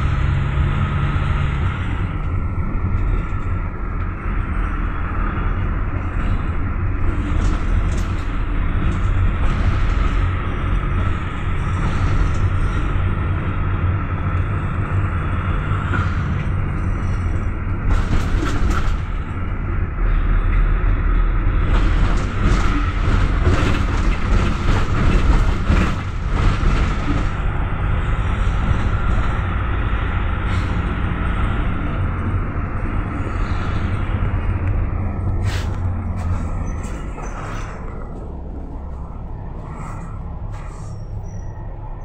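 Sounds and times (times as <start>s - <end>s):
constant high hum: 0.0s - 42.0s
engine and road rumble: 0.0s - 42.0s
rattling and clatter: 0.8s - 19.7s, 21.4s - 29.7s, 30.4s - 41.0s.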